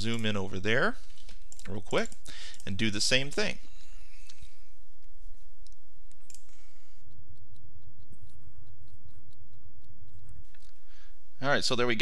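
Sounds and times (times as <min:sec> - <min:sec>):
computer mouse clicking: 0:05.6 - 0:10.8.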